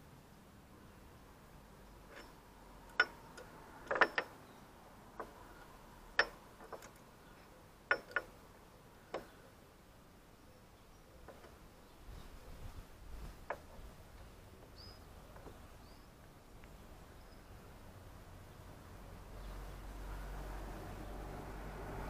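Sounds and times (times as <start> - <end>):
sharp metallic clicks: 2.1 - 4.4, 6.1 - 7.1, 7.9 - 8.4.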